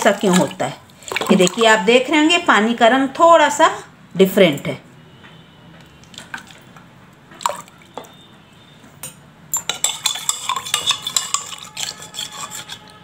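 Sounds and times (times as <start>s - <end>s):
spoon clinking glass bowl: 9.0s - 13.0s
spoon scraping glass: 9.6s - 13.0s.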